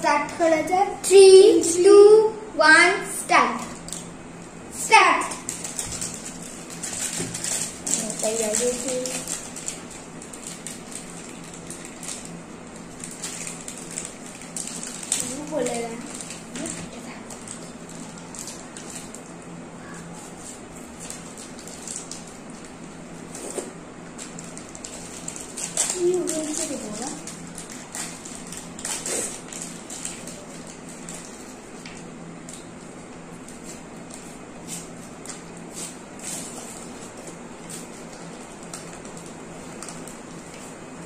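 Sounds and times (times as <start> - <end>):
paper wrappers crinkling and tearing: 5.2 - 41.0.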